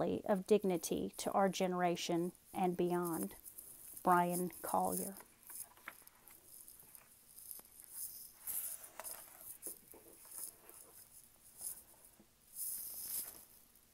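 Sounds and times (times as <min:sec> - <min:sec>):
book pages turning: 0:03.0 - 0:13.6.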